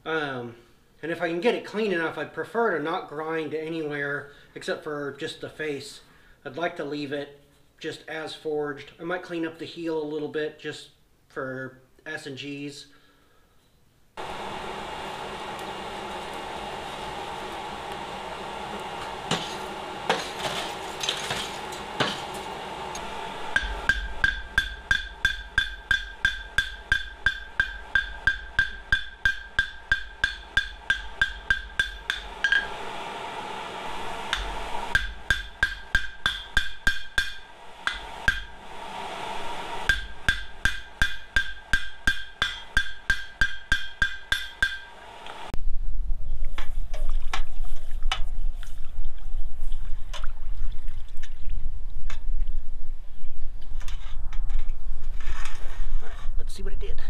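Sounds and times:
coal forge hissing: 14.2s - 45.6s
hammer striking on anvil: 19.0s - 22.4s, 23.5s - 32.8s, 34.3s - 38.6s, 39.8s - 45.0s.

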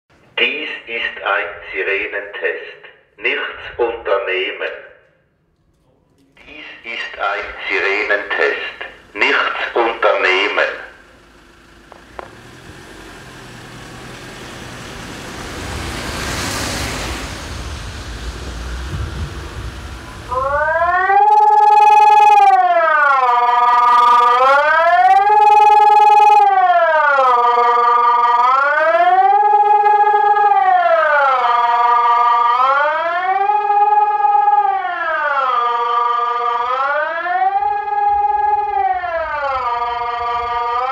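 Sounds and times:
siren wailing: 6.4s - 11.1s, 18.9s - 40.9s
tyres hissing on wet road: 11.4s - 20.3s.

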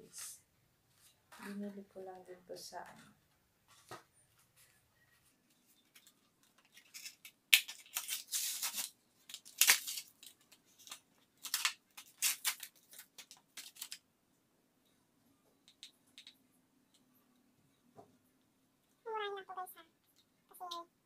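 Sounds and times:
plastic being handled: 3.7s - 14.0s
cardboard packaging tearing: 6.7s - 14.0s.

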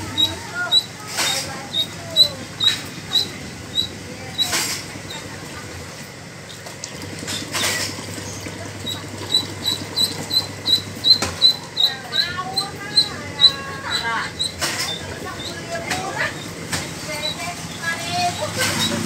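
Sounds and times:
duckling peeping: 0.1s - 0.9s, 1.7s - 4.5s, 8.9s - 15.6s
water splashing in a plastic bucket: 6.4s - 11.6s.

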